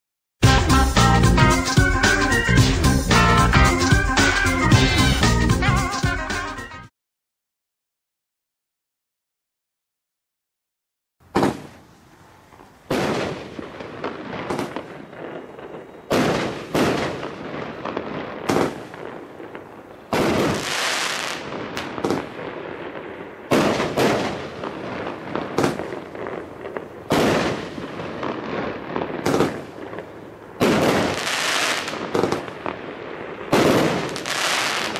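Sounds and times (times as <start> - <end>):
fireworks crackling: 0.4 - 6.4, 11.2 - 34.9
fireworks sharp reports and bursts: 11.3 - 34.9.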